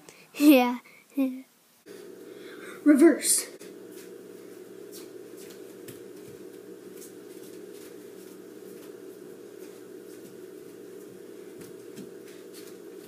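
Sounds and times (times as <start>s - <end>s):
electrical hum: 1.8s - 13.0s
rustles and light taps: 4.9s - 13.0s.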